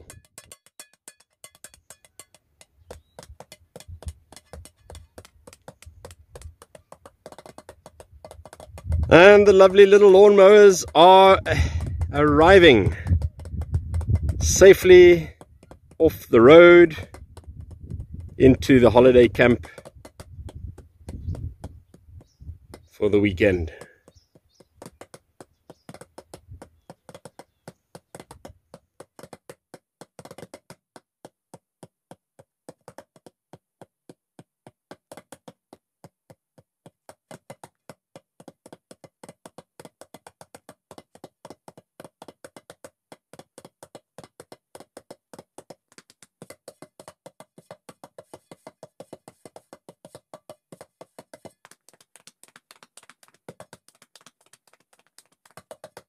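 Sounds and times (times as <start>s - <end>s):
wood-block-like percussive music: 0.0s - 9.8s.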